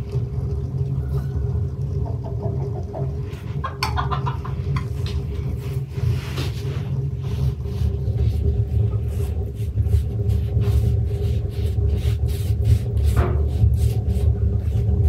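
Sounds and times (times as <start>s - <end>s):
steady low rumble: 0.0s - 15.0s
pastry brush strokes on dough: 6.0s - 15.0s.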